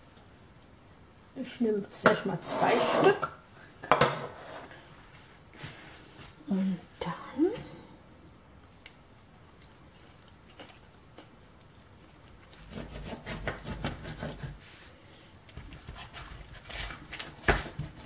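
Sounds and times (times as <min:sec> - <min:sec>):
knife scraping through crust: 0:02.4 - 0:03.2, 0:12.4 - 0:14.6, 0:15.7 - 0:18.0.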